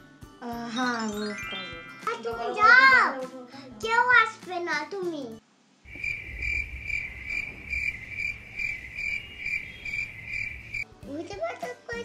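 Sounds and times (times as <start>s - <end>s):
cricket chirping: 5.9s - 10.9s.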